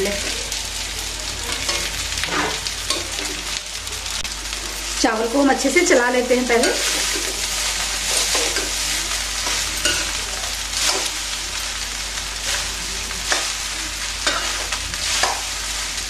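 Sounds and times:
rice sizzling in pan: 0:00.0 - 0:16.0.

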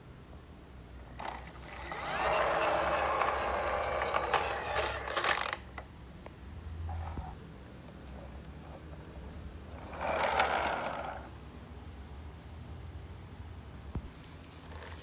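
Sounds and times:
toy truck rolling on tile: 0:01.2 - 0:05.6, 0:09.7 - 0:11.3.

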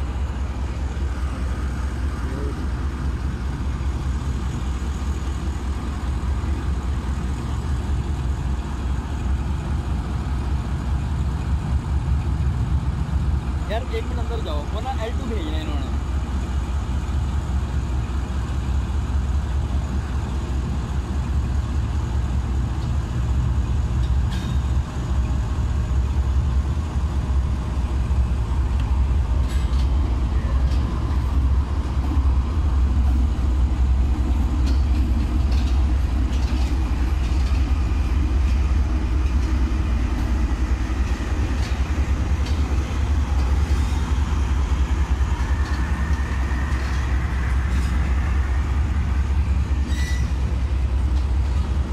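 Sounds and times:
locomotive engine rumble: 0:00.0 - 0:51.9
train clicks: 0:00.0 - 0:51.9
wheel squeal: 0:49.8 - 0:50.4.

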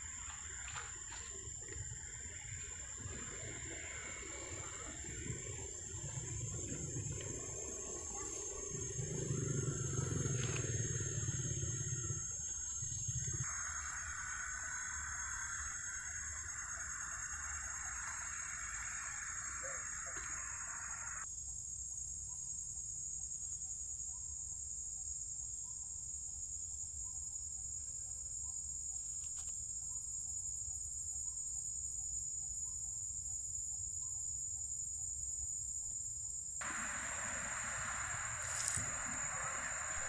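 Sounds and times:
high-pitched insect chorus: 0:00.0 - 0:40.0.

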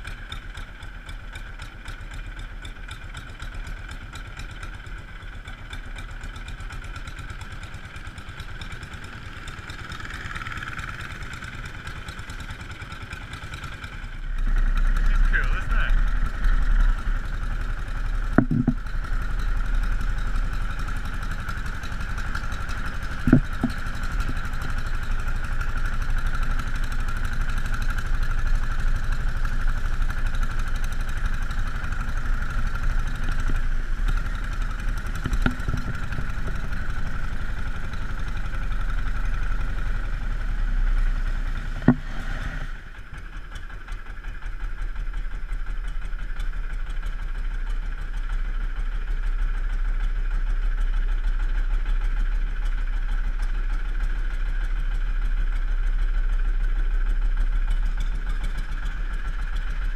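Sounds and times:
boat motor running: 0:05.7 - 0:49.9
short knocks: 0:18.3 - 0:18.9, 0:23.2 - 0:24.4.

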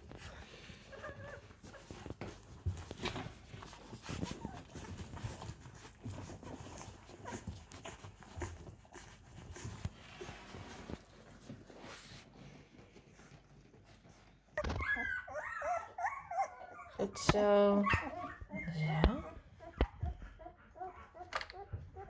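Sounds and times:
puppies suckling clicks: 0:01.1 - 0:11.5, 0:17.1 - 0:22.0
puppies squeaking: 0:14.6 - 0:22.0.

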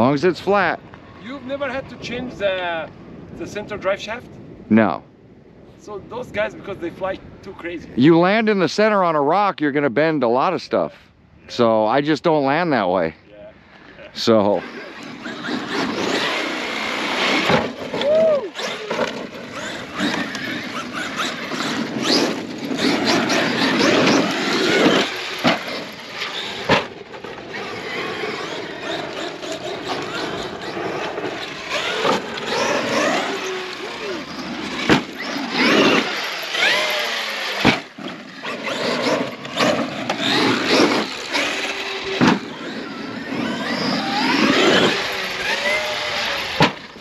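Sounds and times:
rc truck motors whining: 0:14.2 - 0:47.0
trucks landing knocks: 0:17.2 - 0:27.4, 0:34.7 - 0:36.9, 0:42.1 - 0:42.8, 0:46.5 - 0:46.9.

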